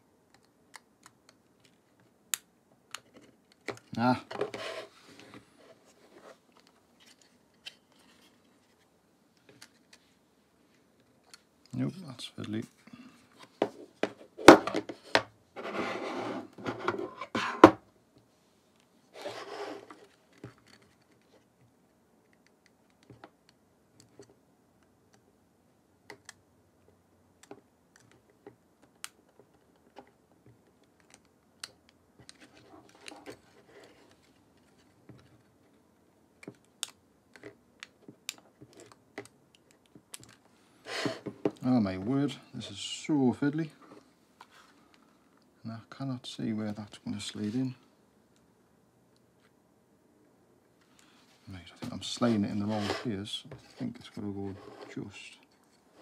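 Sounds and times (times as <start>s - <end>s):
knocks and scraping: 13.4s - 17.8s, 51.8s - 55.0s.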